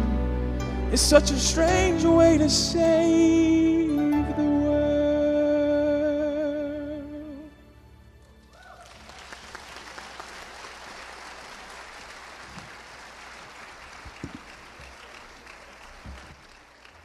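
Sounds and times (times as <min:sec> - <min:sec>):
audience applauding: 0:08.4 - 0:17.0.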